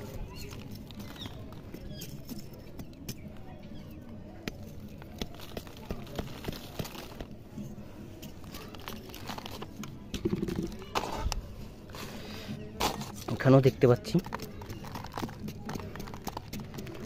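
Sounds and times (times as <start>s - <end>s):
soil crumbling and crackling: 0.0s - 17.0s
fingers scraping soil: 4.5s - 17.0s.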